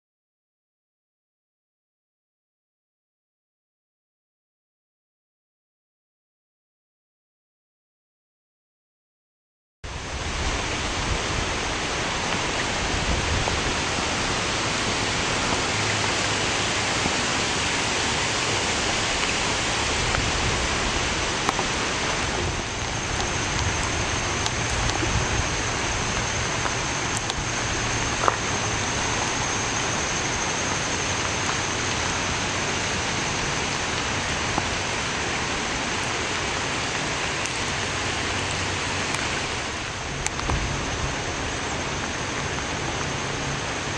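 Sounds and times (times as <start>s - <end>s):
rain: 9.8s - 43.9s
rushing floodwater: 9.9s - 43.9s
light ticks: 26.1s - 27.4s.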